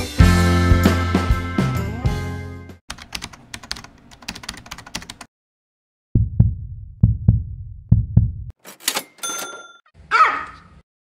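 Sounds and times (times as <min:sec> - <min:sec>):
background music: 0:00.0 - 0:02.8
deep thumps: 0:06.2 - 0:08.5.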